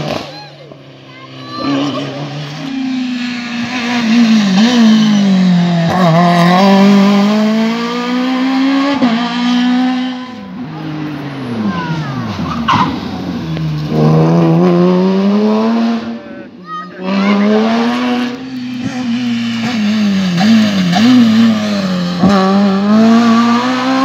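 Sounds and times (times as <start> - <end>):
rally car engines at full throttle: 0.0 - 24.0
short tyre squeal: 10.0 - 13.1.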